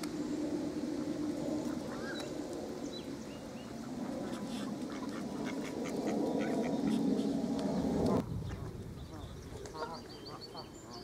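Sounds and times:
ducks calling: 0:03.6 - 0:07.4, 0:08.1 - 0:11.0.

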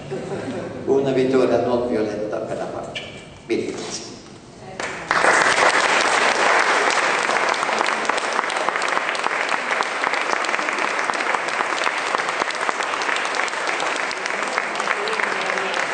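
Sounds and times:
audience applauding: 0:04.8 - 0:15.9.

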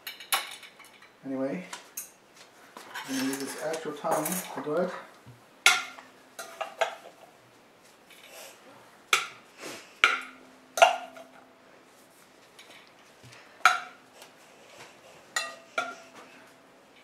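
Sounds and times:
metal tongs clinking on glass bowl: 0:03.0 - 0:04.5.

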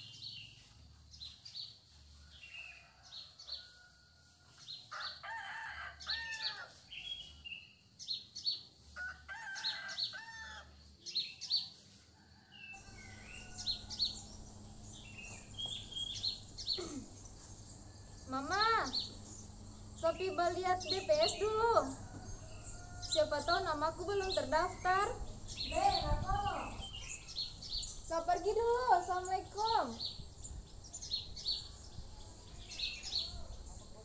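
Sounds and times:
small birds chirping: 0:00.0 - 0:03.9, 0:04.5 - 0:34.0
rooster crowing: 0:02.3 - 0:06.8, 0:09.0 - 0:10.7, 0:12.2 - 0:16.7, 0:20.0 - 0:24.9.

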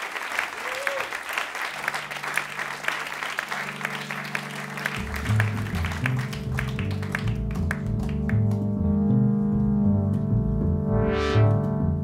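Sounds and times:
audience applause: 0:00.0 - 0:08.7
piano: 0:00.6 - 0:12.0
low held notes: 0:01.8 - 0:12.0
bass: 0:01.9 - 0:12.0.

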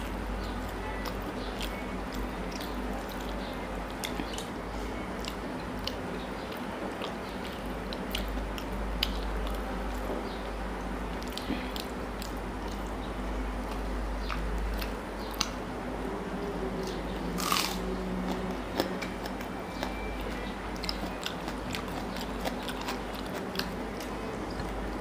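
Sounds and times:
chewing and mouth sounds: 0:00.0 - 0:15.7, 0:16.4 - 0:25.0
steady low hum: 0:00.0 - 0:25.0.

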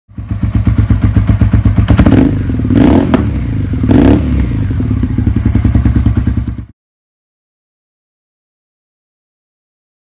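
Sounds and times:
motorcycle engine revving: 0:00.1 - 0:06.7.

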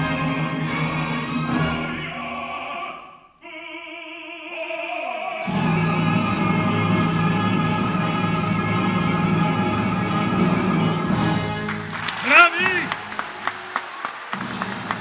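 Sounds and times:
orchestra playing: 0:00.0 - 0:02.4, 0:05.4 - 0:15.0
men singing operatic duet: 0:01.6 - 0:06.1.

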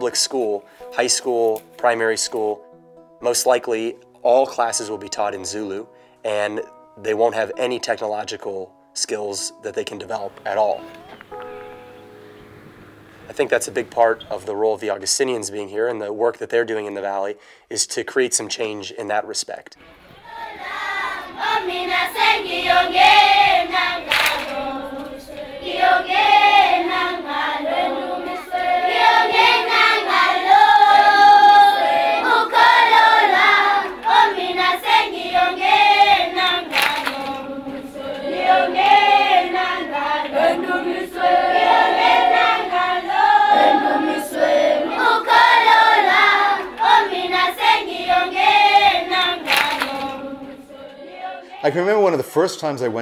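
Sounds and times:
group of voices singing: 0:20.0 - 0:51.9
sharp hand claps: 0:24.1 - 0:24.6, 0:36.7 - 0:37.4, 0:49.4 - 0:50.2.

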